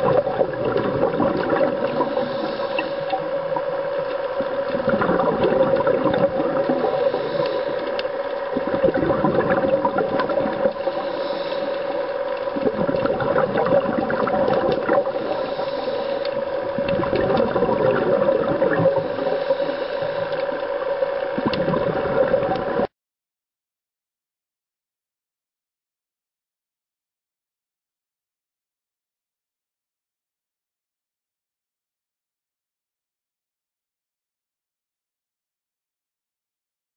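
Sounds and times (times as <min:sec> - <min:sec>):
underwater hum: 0:00.0 - 0:22.9
water noise washing: 0:00.0 - 0:22.9.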